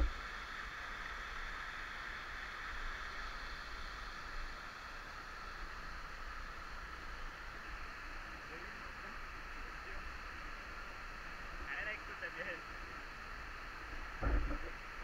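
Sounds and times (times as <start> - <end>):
water flowing over rock: 0.0 - 15.0
microphone handling rumble: 14.1 - 15.0
short bump: 14.2 - 14.7.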